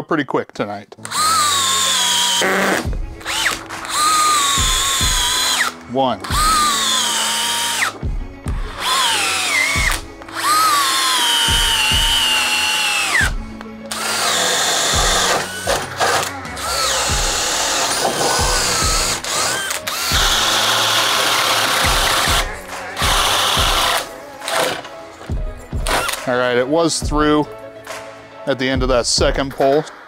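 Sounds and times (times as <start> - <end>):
drill boring holes in wood: 1.0 - 8.0, 8.6 - 24.8
drill driving screws into wood: 1.0 - 8.0, 8.6 - 24.9, 25.8 - 26.2.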